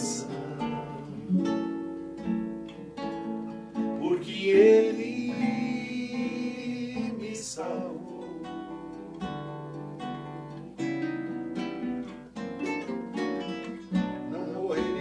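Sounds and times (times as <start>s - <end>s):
person singing: 0.0s - 1.8s, 3.9s - 9.4s, 13.9s - 15.0s
acoustic guitar accompaniment: 0.0s - 15.0s.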